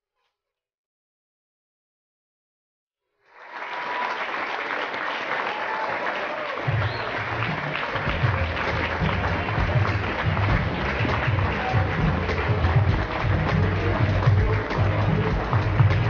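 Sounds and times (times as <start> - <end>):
audience applauding: 3.2 - 16.0
music with heavy bass beat: 8.0 - 16.0.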